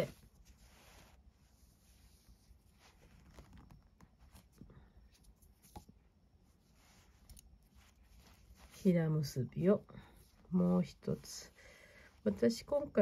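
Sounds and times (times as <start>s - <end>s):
cord rustling and ticking: 1.8s - 9.3s.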